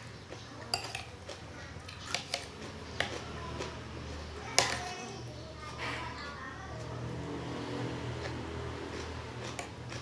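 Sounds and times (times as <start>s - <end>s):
metal spoon clinking on plate: 0.7s - 1.1s.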